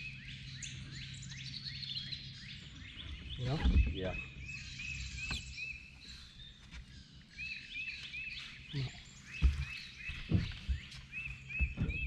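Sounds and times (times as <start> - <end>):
bird chirping: 0.0 - 12.0
dull low thumps: 9.3 - 12.0.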